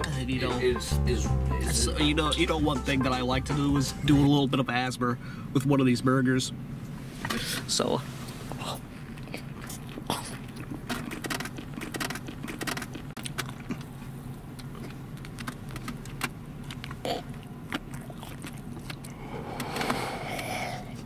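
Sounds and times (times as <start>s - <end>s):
car interior hum: 0.0s - 21.0s
chewing and wet mouth clicks: 9.1s - 20.5s.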